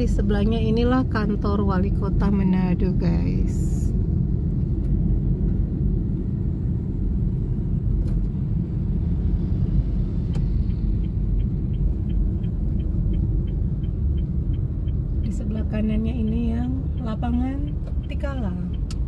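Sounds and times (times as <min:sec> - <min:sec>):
car driving rumble: 0:00.0 - 0:19.0
fast regular ticking: 0:10.6 - 0:19.0.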